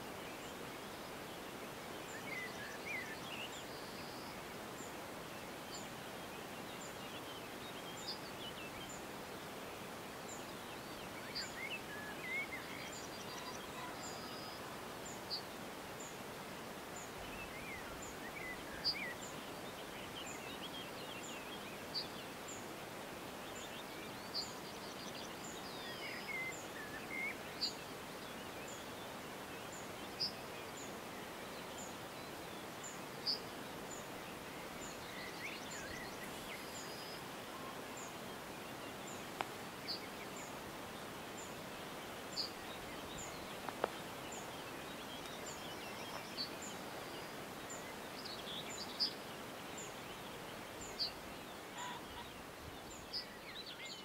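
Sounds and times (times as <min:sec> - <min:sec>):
faint background hiss: 0:00.0 - 0:54.0
bird calls: 0:10.3 - 0:16.2, 0:23.5 - 0:54.0.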